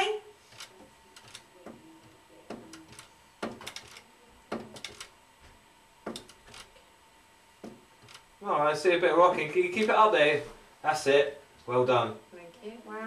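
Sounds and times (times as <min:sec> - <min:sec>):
table rattling: 0:02.5 - 0:05.2, 0:06.0 - 0:06.8
table legs knocking on floor: 0:07.6 - 0:08.1.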